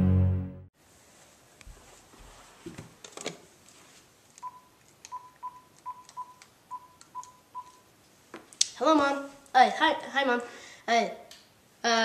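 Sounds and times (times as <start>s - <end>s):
phone keypad beeps: 4.4s - 7.9s.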